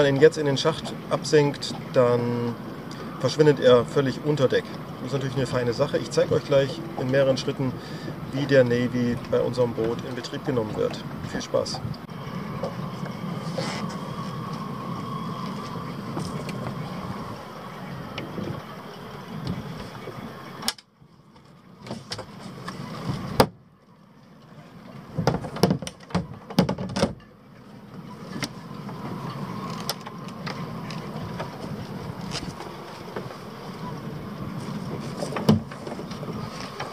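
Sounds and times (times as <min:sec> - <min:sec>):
steady background hum: 0:00.0 - 0:36.9
hatch latch clicks and clunks: 0:20.6 - 0:20.9.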